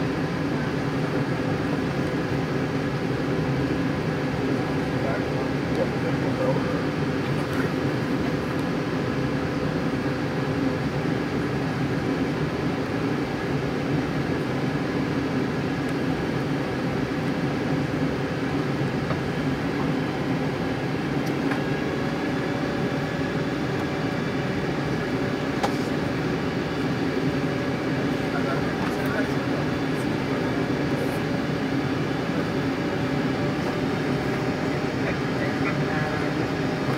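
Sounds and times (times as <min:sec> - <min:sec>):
airliner cabin engine drone: 0:00.0 - 0:36.9.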